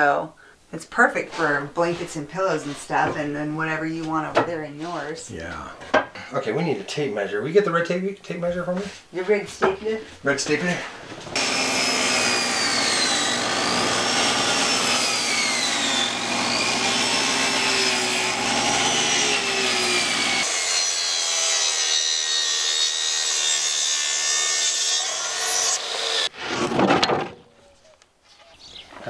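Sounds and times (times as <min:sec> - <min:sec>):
power saw cutting plywood: 0:11.2 - 0:27.1
track saw cutting plywood: 0:11.3 - 0:26.9.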